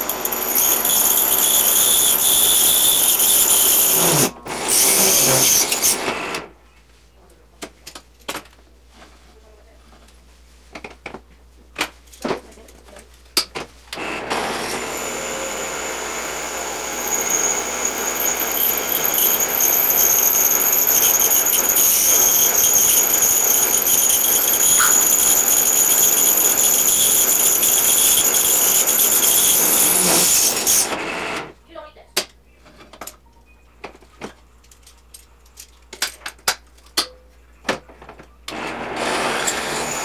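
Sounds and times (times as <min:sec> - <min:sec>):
power tool high whine: 0:00.0 - 0:06.3, 0:14.0 - 0:31.2, 0:39.1 - 0:40.0.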